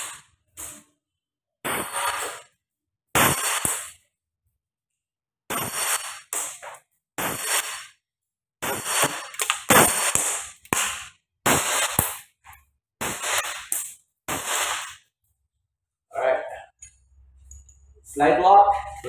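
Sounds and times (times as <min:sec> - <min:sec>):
airsoft pistol shots: 0:03.2 - 0:04.0, 0:08.6 - 0:12.3.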